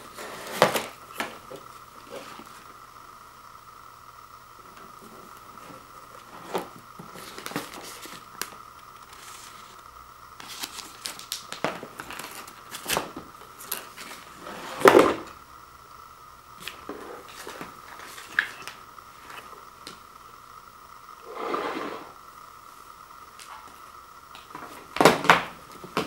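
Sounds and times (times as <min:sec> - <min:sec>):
paper tags crinkling: 0:10.4 - 0:14.3.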